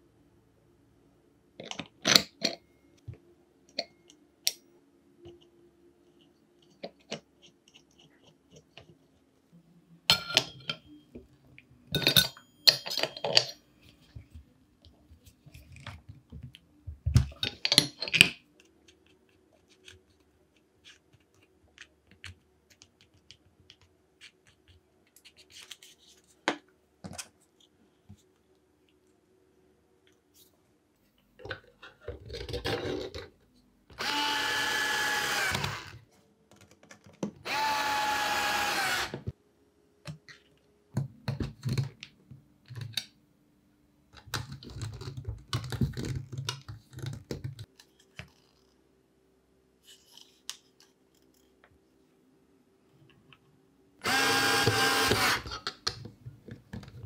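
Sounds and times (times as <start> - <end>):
faint steady hum: 0.0 - 36.6
metal parts clicking and clinking: 11.9 - 13.6, 17.3 - 18.4.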